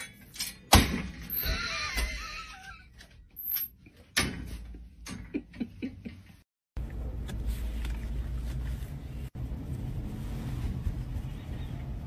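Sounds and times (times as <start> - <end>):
metal gate clicking and rattling: 0.0 - 2.1.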